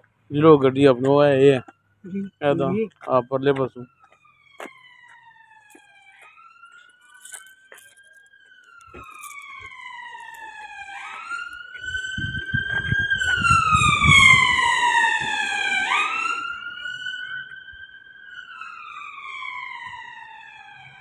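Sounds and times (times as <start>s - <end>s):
emergency siren wailing: 0.0s - 21.0s
low rumble: 11.9s - 14.7s.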